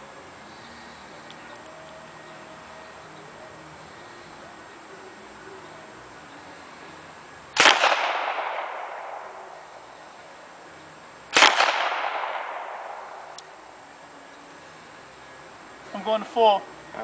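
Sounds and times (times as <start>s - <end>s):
gunshots with echo: 7.6s - 9.6s, 11.3s - 13.4s.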